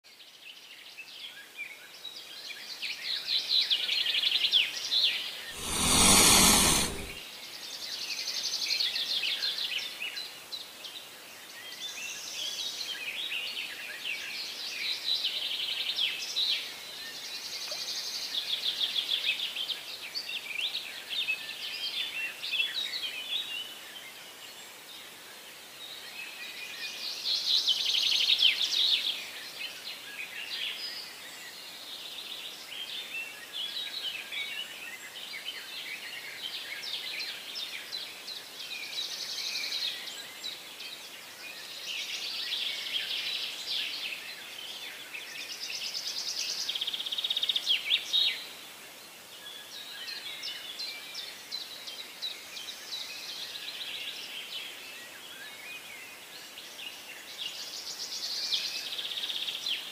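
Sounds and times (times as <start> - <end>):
loud rush of noise: 5.6 - 7.2.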